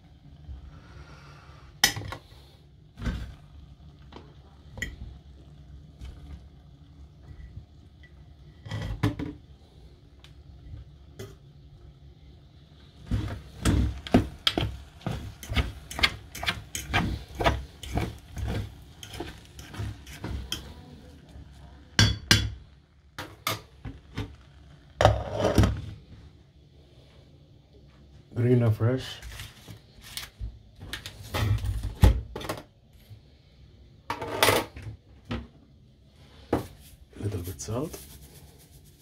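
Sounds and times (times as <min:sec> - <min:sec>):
utensil scraping rice pot: 0:13.1 - 0:21.6, 0:25.0 - 0:25.7.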